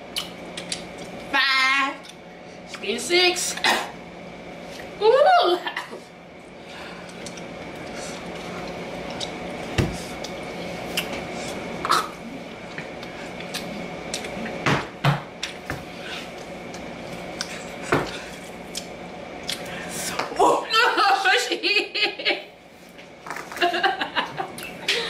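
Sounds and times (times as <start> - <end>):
steady low hum: 0.0 - 25.0
wet gum chewing and smacking: 0.1 - 1.2, 7.0 - 11.6, 16.7 - 19.7.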